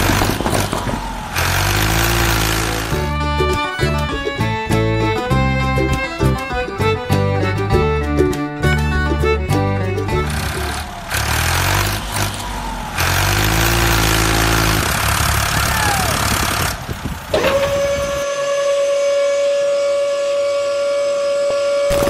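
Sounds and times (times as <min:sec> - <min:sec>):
model truck engine drone: 0:00.0 - 0:22.0
high motor whine: 0:10.1 - 0:22.0.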